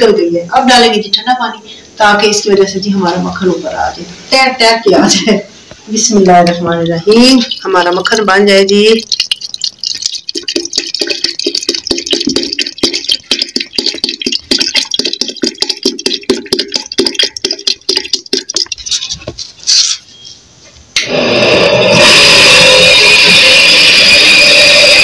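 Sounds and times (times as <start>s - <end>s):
water glugging from bottle: 6.2s - 19.6s.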